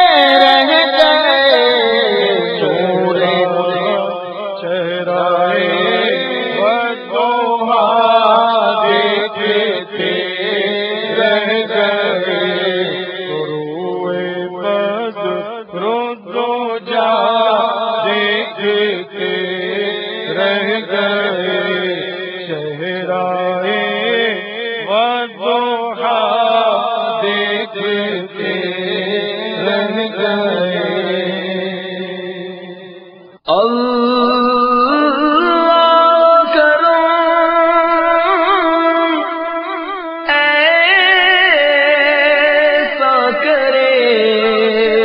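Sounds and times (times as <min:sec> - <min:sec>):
men chanting devotional song: 0:00.0 - 0:45.0.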